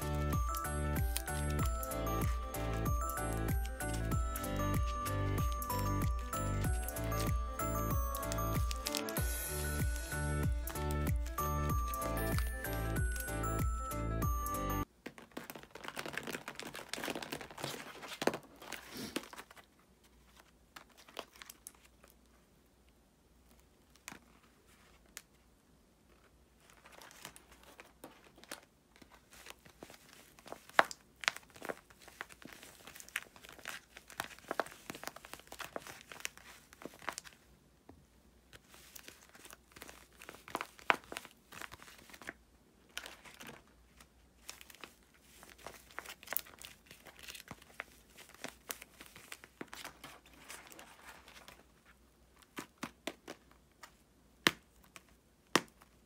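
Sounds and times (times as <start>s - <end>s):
plastic crinkling when squeezed: 15.0s - 22.2s, 26.6s - 37.4s, 38.6s - 51.7s.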